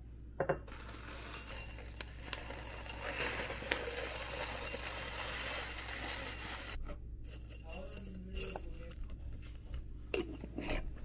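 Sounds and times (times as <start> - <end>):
glass jar clinking: 0.5 - 9.0
tea leaves pouring: 0.7 - 9.0.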